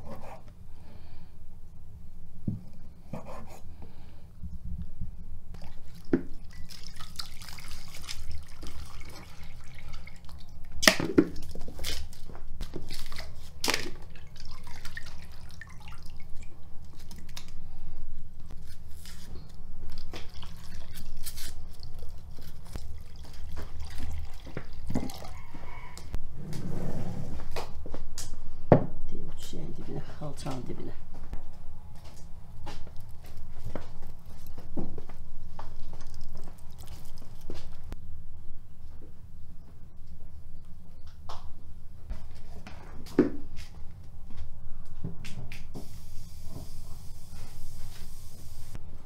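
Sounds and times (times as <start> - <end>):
water poured from a jug: 5.6 - 10.6, 12.7 - 17.5, 20.0 - 25.5, 35.8 - 37.7
meat washed in water: 5.6 - 17.6, 19.9 - 25.9, 35.7 - 37.9.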